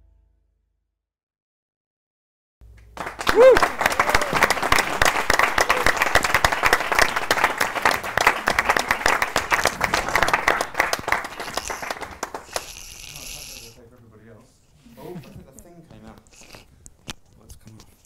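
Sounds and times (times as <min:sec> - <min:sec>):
audience applauding: 0:02.8 - 0:13.8.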